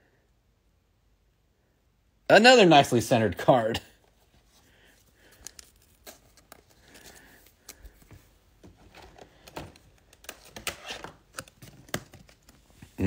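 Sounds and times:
card sleeve rustling and clicking: 0:05.0 - 0:12.9.

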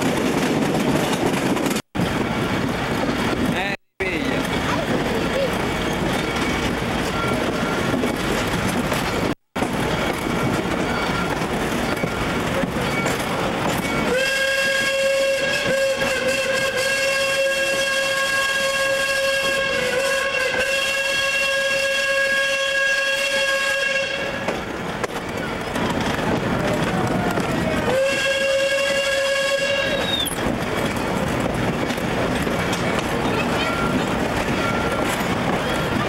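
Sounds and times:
train rolling noise: 0:00.0 - 0:36.0
steam locomotive whistle: 0:14.0 - 0:24.5, 0:27.8 - 0:30.4.

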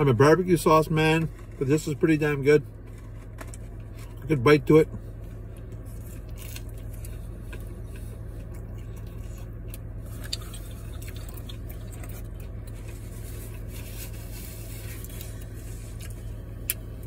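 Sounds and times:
low hum inside car: 0:00.0 - 0:17.0
man chewing food: 0:05.1 - 0:17.0.

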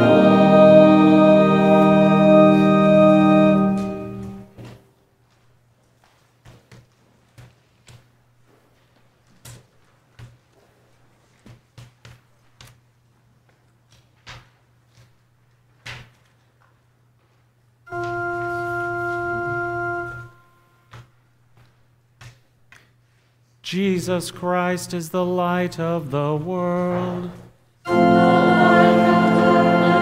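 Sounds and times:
church organ held note: 0:00.0 - 0:04.8, 0:17.9 - 0:20.9, 0:27.8 - 0:30.0.

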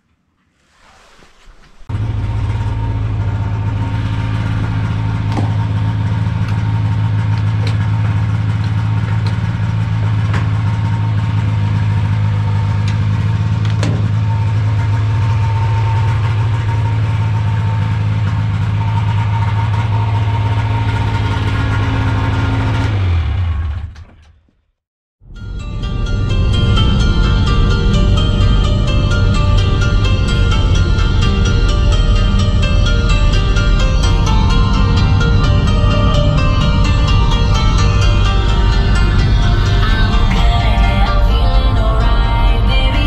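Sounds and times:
snowmobile engine idling: 0:01.9 - 0:24.0, 0:25.7 - 0:43.0.

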